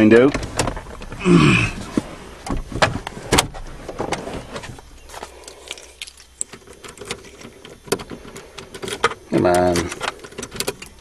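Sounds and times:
handling clicks and knocks: 6.0s - 11.0s.

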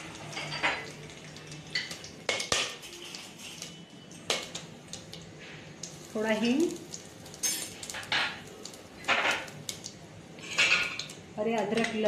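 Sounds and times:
spices sizzling in hot oil: 0.0s - 12.0s
metal spoon clinking on pot: 7.3s - 8.4s.

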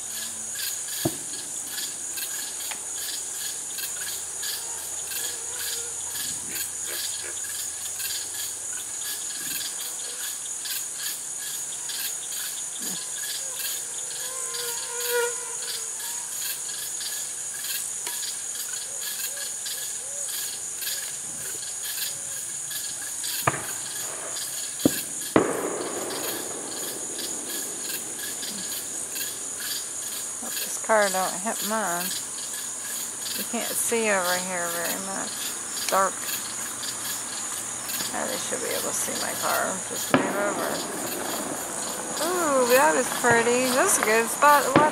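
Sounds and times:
crickets and insects trilling: 0.0s - 44.9s
sharp bangs: 23.4s - 30.3s.

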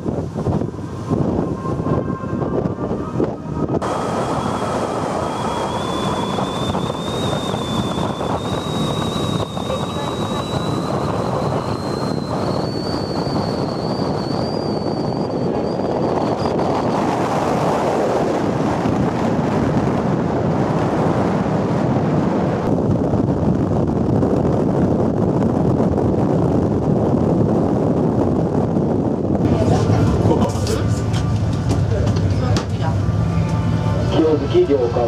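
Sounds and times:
thin rising whine: 0.0s - 25.5s
wind buffeting microphone: 0.0s - 35.0s.

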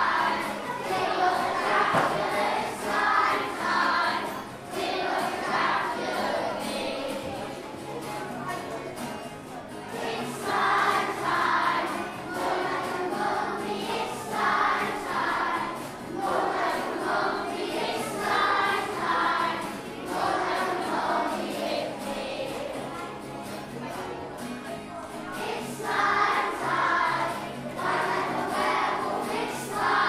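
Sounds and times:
children singing: 0.0s - 7.6s, 9.7s - 23.3s, 25.2s - 30.0s
musical accompaniment: 0.0s - 30.0s.

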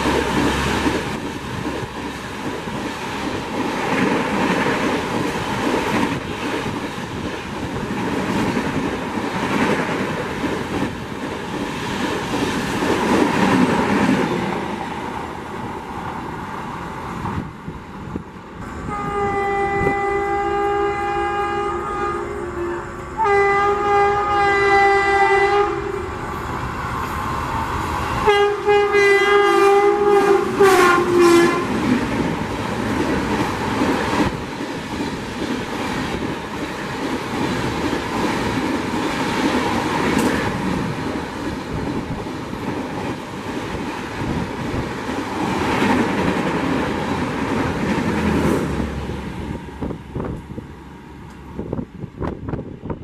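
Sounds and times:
train passing with wheel clatter: 0.0s - 53.0s
two-note locomotive horn: 18.6s - 27.2s, 28.2s - 31.8s.

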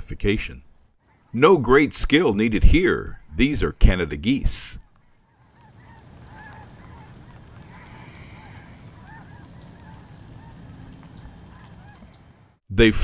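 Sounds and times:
geese honking: 5.0s - 12.6s.

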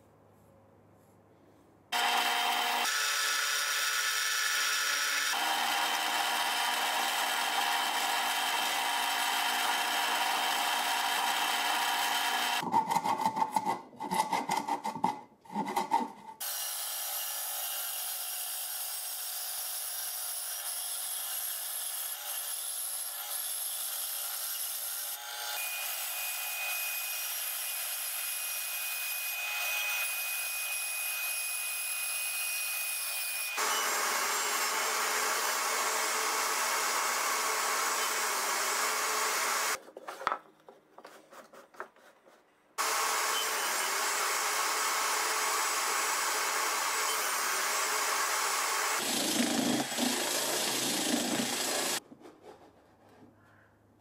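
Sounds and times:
band saw cutting wood: 1.9s - 39.8s, 42.8s - 52.0s
drill press boring wood: 2.0s - 12.6s, 33.6s - 39.8s, 42.8s - 52.0s.

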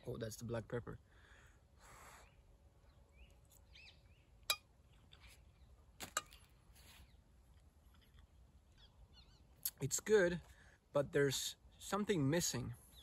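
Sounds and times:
faint bird chirps: 1.9s - 5.8s, 8.7s - 9.7s.

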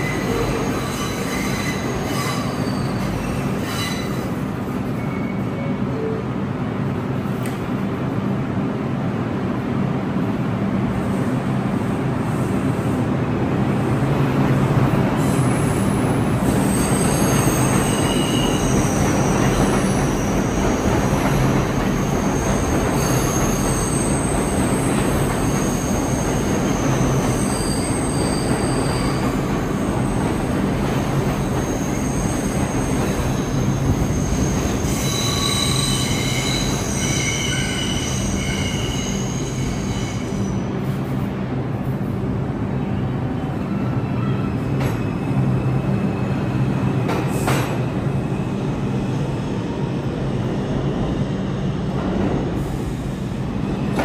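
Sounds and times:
subway train rumbling on rails: 0.0s - 54.0s
high-pitched wheel squeal: 25.6s - 29.2s, 31.6s - 40.6s.

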